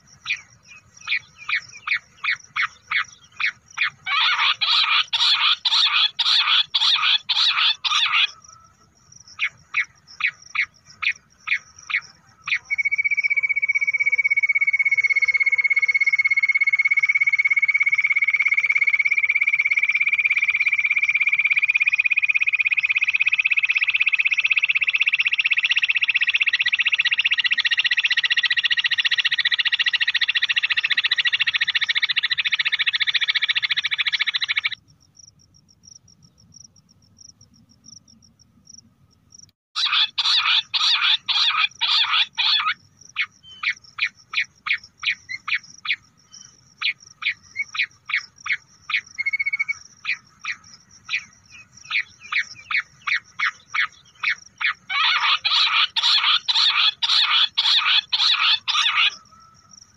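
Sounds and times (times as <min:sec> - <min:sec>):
quail call notes: 0:00.0 - 0:16.0, 0:39.8 - 0:46.0, 0:46.8 - 0:59.6
quail trill rising in pitch: 0:01.1 - 0:08.7, 0:39.8 - 0:43.8, 0:51.9 - 0:59.6.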